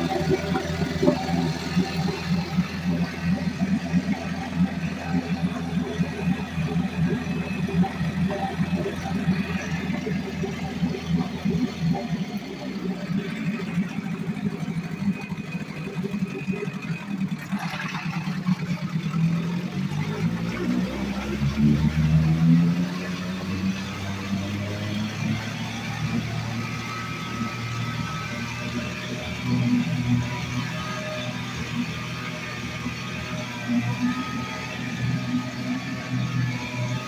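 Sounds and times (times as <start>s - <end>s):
outboard motor running: 0.0s - 37.0s
propeller churning water: 0.0s - 37.0s.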